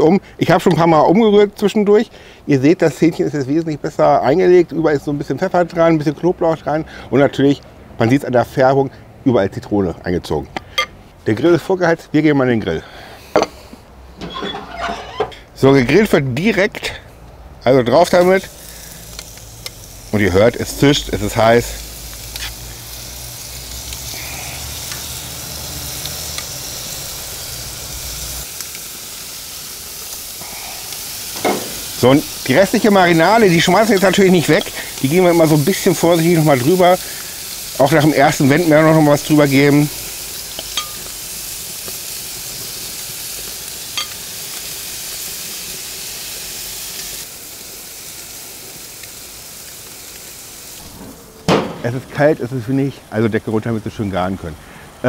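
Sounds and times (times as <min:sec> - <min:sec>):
chicken sizzling on grill: 0:17.7 - 0:55.0.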